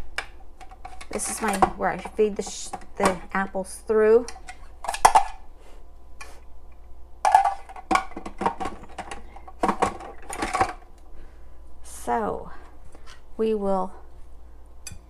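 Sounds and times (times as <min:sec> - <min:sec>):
hard plastic parts clacking: 0:07.3 - 0:10.8.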